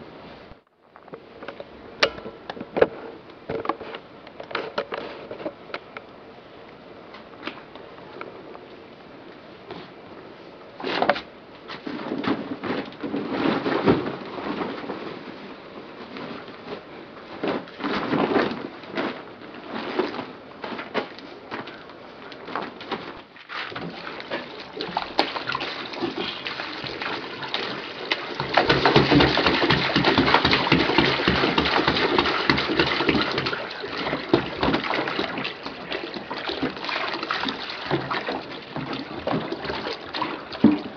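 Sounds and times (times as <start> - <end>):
clothes and plastic bag rustling: 7.3 - 40.9
water pouring into a basin: 23.8 - 40.9.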